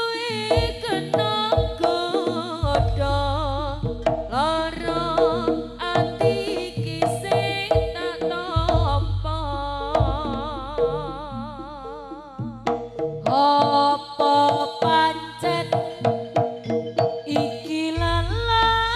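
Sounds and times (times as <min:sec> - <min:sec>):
hand drum strokes: 0:00.0 - 0:18.9
deep low booms: 0:02.6 - 0:13.3
wavering melody line: 0:09.5 - 0:18.9.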